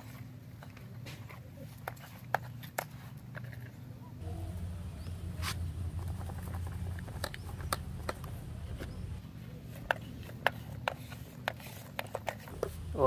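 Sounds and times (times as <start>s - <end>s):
steady low rumble: 4.2s - 9.2s
sand sliding and scraping: 5.0s - 7.5s, 9.7s - 13.0s
plastic clicks and taps: 7.0s - 9.0s.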